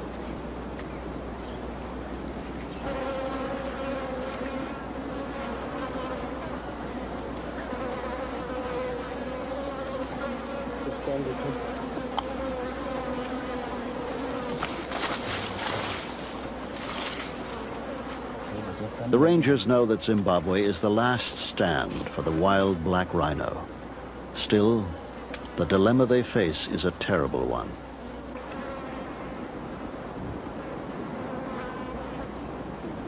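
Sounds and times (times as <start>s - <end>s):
flies buzzing: 0.0s - 33.0s
brief rustles: 14.4s - 17.5s.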